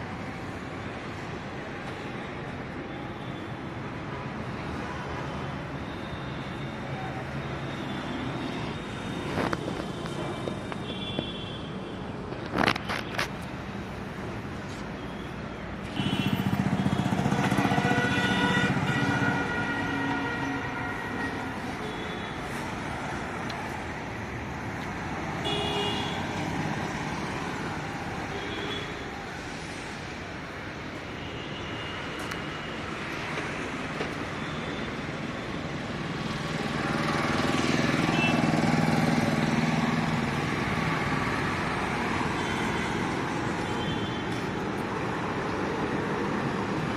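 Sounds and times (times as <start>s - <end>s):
busy road traffic: 0.0s - 46.9s
vehicle horn toots: 15.9s - 16.5s, 17.6s - 22.3s
loud vehicle passing: 16.1s - 19.9s, 36.0s - 43.6s.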